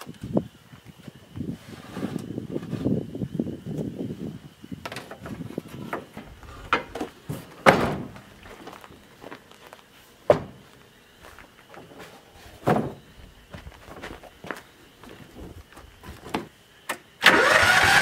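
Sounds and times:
dump bed banging down: 4.8 - 8.6, 10.3 - 10.7, 12.5 - 13.1
footsteps on gravel: 8.1 - 16.5.

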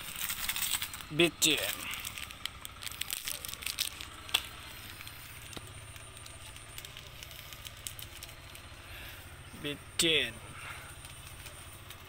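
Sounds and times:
low steady rumble: 0.0 - 12.0
wood fire crackling and popping: 0.0 - 12.0.

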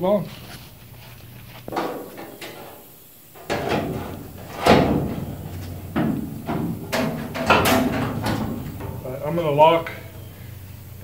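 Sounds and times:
metal fender knocking with ring: 1.7 - 2.8, 3.4 - 10.5.

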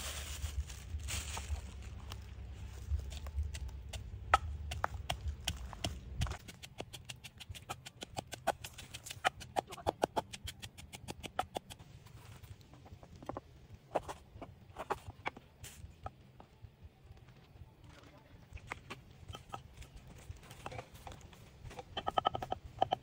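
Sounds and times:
pestle pounding in wooden mortar: 3.9 - 11.8.

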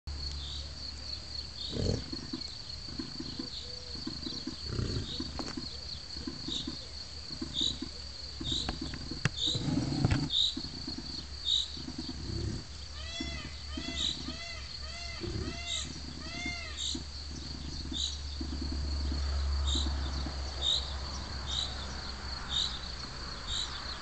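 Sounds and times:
high insect whine: 0.1 - 24.0
bird chirping: 0.2 - 24.0
bison grunting: 1.6 - 5.6, 8.4 - 11.2, 11.8 - 20.4.

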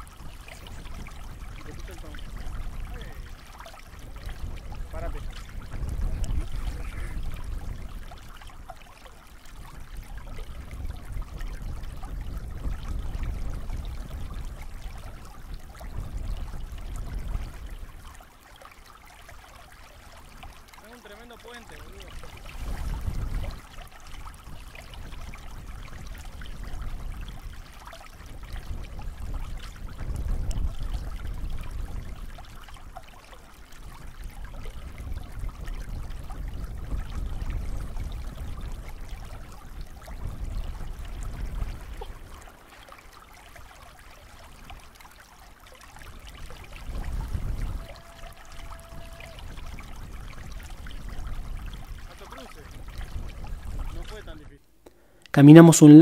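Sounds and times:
deep rumbling water surges: 0.0 - 56.0
river rushing: 41.8 - 49.8.

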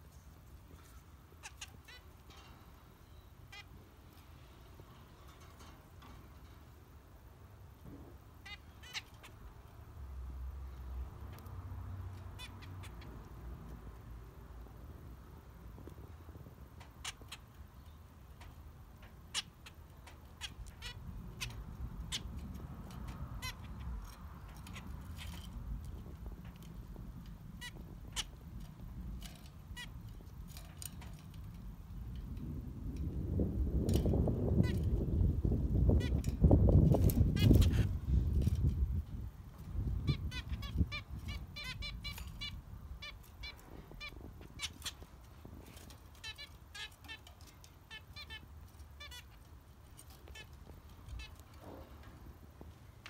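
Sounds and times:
finches giving nasal calls: 1.4 - 2.2, 3.4 - 3.8, 8.4 - 9.4, 19.3 - 26.4, 27.6 - 28.5, 29.6 - 30.4, 35.9 - 38.3, 39.8 - 49.4, 50.0 - 51.5
finches calling: 35.9 - 38.1, 39.7 - 49.4.

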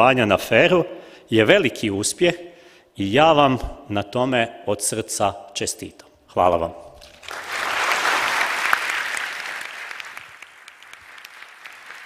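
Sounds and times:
audience applauding: 7.1 - 12.0.

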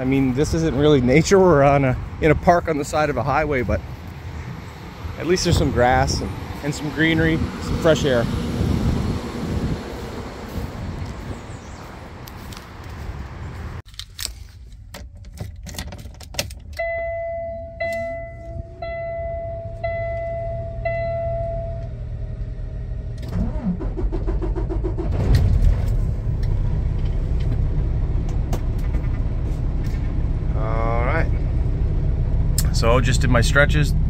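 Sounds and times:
dashboard warning chime beeping: 16.8 - 22.0
diesel engine cranking and idling: 16.8 - 34.0.

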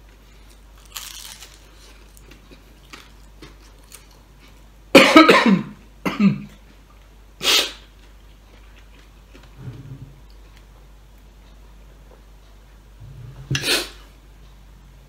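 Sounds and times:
man coughing: 5.0 - 6.5.

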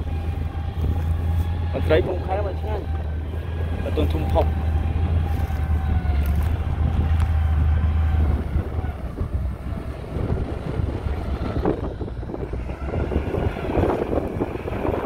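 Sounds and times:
blade pushing soil: 0.0 - 8.9
diesel engine droning: 0.0 - 15.0
wind noise on microphone: 0.0 - 15.0.

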